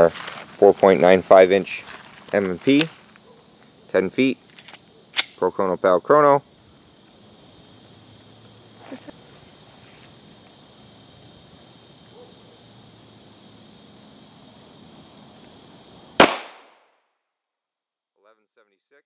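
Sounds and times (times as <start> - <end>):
high-pitched insect hum: 0.0 - 19.0
pistol shot: 16.2 - 16.8.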